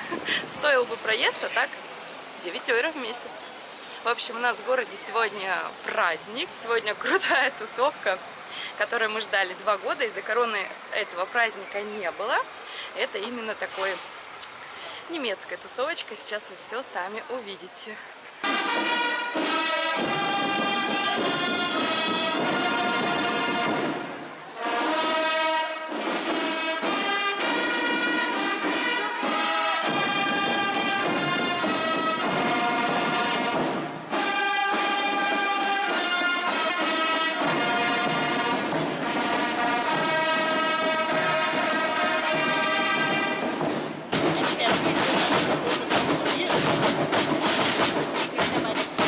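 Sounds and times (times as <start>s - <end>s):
brass marching band music: 18.4s - 49.0s.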